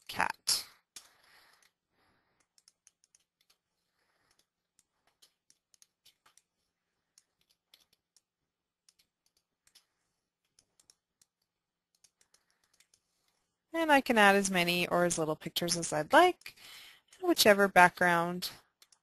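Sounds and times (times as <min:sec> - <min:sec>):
faint computer mouse clicks: 0:04.2 - 0:06.5.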